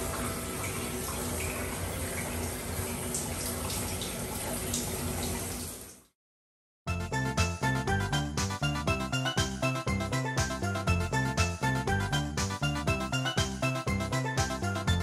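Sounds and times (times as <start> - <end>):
tap water running into bathtub: 0.0 - 6.2.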